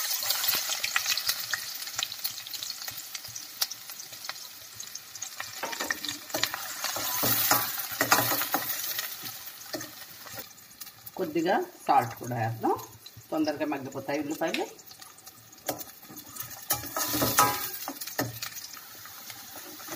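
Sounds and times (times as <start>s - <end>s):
onions sizzling in hot oil: 0.0s - 19.9s
spatula scraping a pan: 5.5s - 10.5s, 15.6s - 19.9s.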